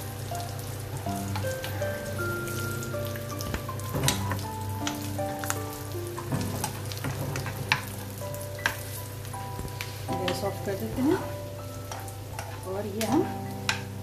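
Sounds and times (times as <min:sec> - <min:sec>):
nuts sizzling in a pan: 0:00.0 - 0:14.0
steel spoon scraping a pan: 0:09.8 - 0:14.0.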